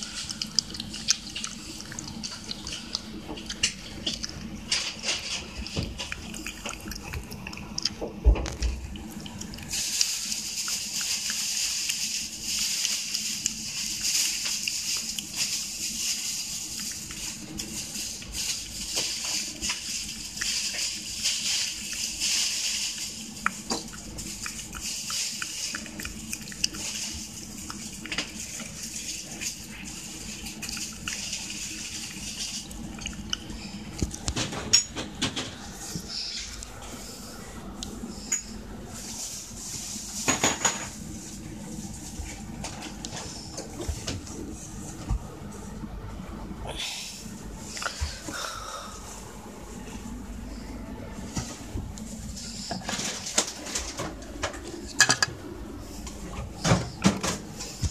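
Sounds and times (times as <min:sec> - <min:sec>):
cat licking from a bowl: 0:00.0 - 0:04.6, 0:05.2 - 0:15.4, 0:21.4 - 0:34.2
steady wet hiss: 0:00.0 - 0:34.0, 0:46.6 - 0:53.0
cat licking wet smacking: 0:00.1 - 0:04.4, 0:23.4 - 0:28.7.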